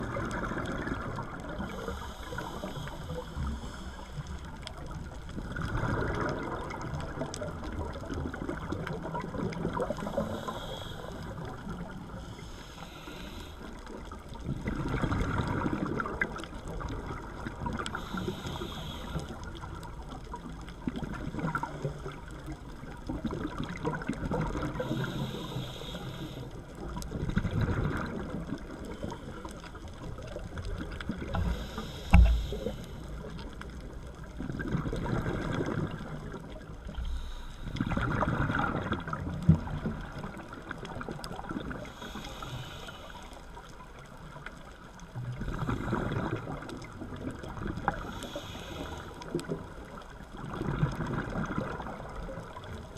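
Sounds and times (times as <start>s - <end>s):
regulator inhalation hisses: 1.7s - 4.3s, 10.0s - 11.3s, 12.2s - 13.8s, 17.9s - 19.5s, 24.8s - 26.5s, 31.4s - 33.1s, 41.9s - 43.4s, 48.0s - 49.2s.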